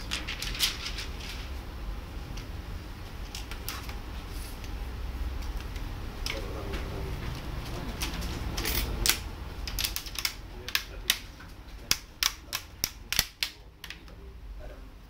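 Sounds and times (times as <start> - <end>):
plastic clips snapping into place: 9.0 - 11.3, 11.9 - 14.0.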